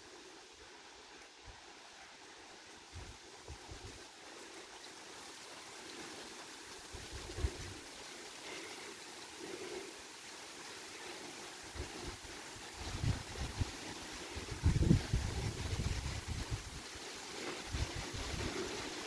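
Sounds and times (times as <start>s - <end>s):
rain falling: 0.0s - 19.0s
wind buffeting microphone: 11.8s - 16.9s, 17.5s - 19.0s.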